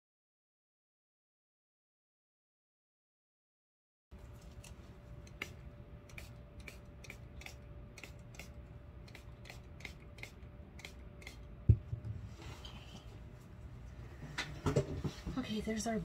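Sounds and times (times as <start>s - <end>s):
faint steady hum: 4.2s - 16.0s.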